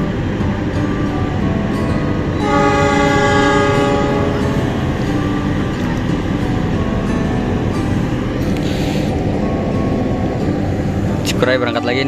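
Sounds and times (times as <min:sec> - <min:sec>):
diesel train rumbling: 0:00.0 - 0:12.0
train horn blast: 0:02.4 - 0:06.0.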